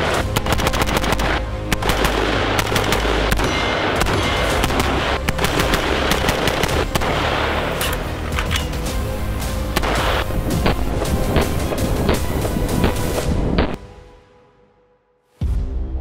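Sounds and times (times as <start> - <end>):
rifle firing rapid shots: 0.0 - 8.7, 9.8 - 13.7.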